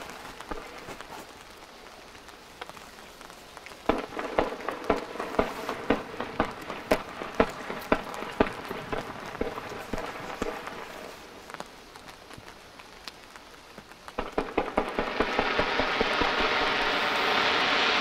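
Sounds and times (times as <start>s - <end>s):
fireworks launching: 3.9s - 11.3s, 14.2s - 18.0s.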